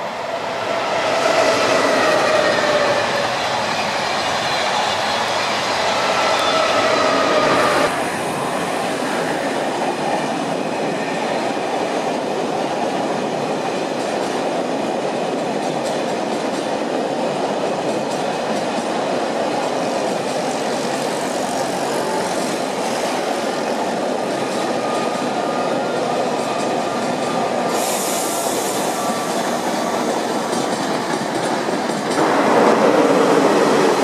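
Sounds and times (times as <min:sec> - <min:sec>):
train wheels rumbling on rails: 0:00.0 - 0:34.0.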